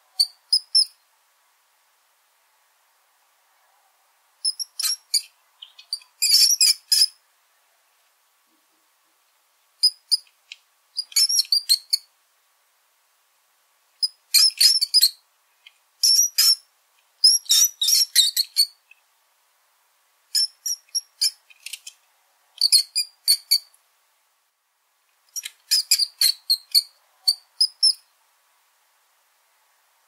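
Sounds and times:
small rodent squeaking: 0.1 - 1.0, 4.4 - 7.2, 9.8 - 12.1, 14.0 - 15.2, 16.0 - 18.9, 20.3 - 22.0, 22.6 - 23.7, 25.3 - 28.1.

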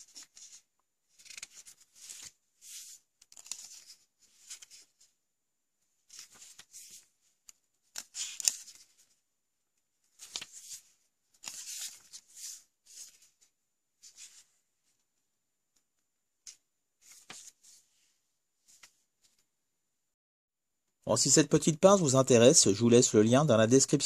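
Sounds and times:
paper pages rustling: 0.0 - 5.1, 6.0 - 9.2, 10.0 - 15.0, 16.4 - 19.5.

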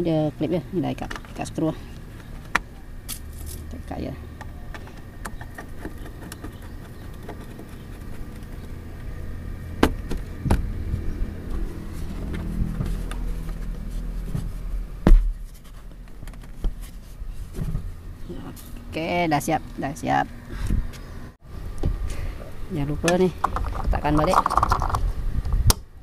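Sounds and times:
screwdriver scraping plastic trim: 5.3 - 8.7.

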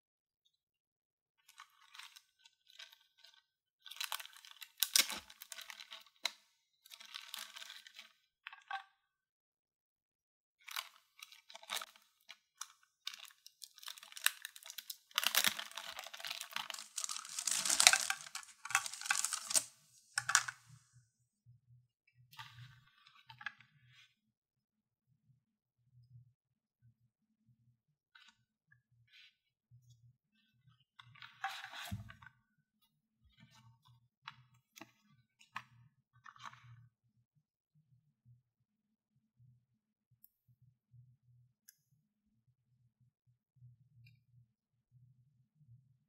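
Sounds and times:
packaging crinkling and tearing: 13.8 - 20.7.

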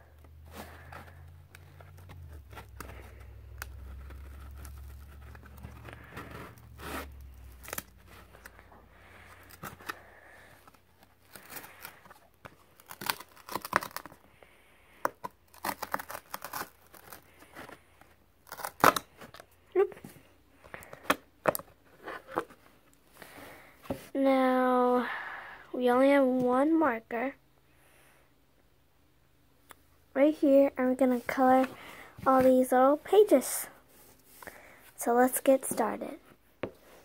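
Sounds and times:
plastic packaging crinkling: 0.5 - 14.2, 15.2 - 17.8, 18.4 - 19.5.

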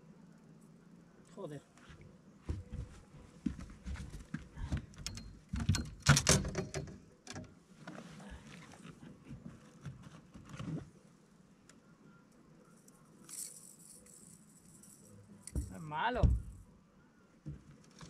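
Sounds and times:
knocks and clattering on boat deck: 3.9 - 7.5, 15.6 - 16.6, 17.4 - 17.8.

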